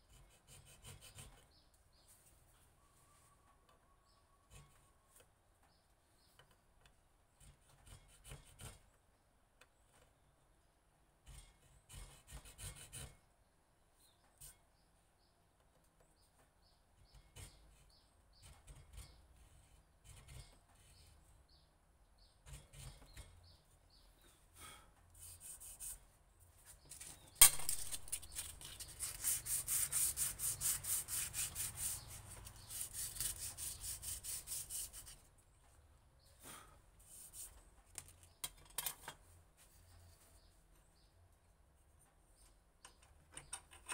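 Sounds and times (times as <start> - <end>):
steel tool scratching wood: 0.0 - 1.6, 7.4 - 8.9, 11.2 - 13.2, 17.0 - 21.6, 22.3 - 23.6, 25.2 - 26.0, 26.9 - 35.2
rubbing strokes on wooden handle: 25.2 - 35.3.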